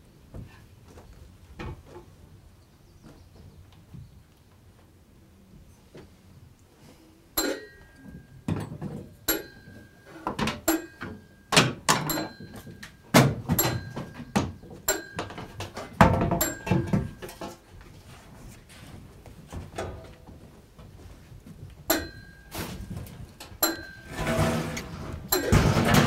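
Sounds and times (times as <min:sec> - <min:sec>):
metallic clanks on cooking pot: 0:07.4 - 0:12.9, 0:13.5 - 0:17.6, 0:21.9 - 0:22.4, 0:23.4 - 0:26.0.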